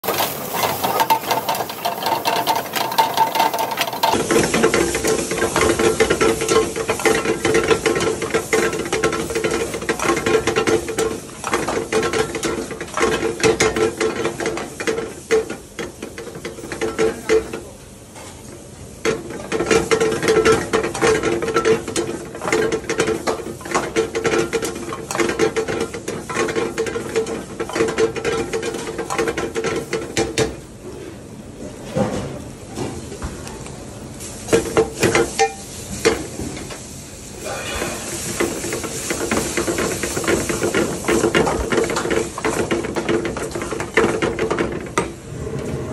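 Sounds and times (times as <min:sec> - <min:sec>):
metal ladle scraping a wok: 0:00.0 - 0:10.4
oil sizzling: 0:00.0 - 0:17.7, 0:18.5 - 0:30.6, 0:34.0 - 0:45.2.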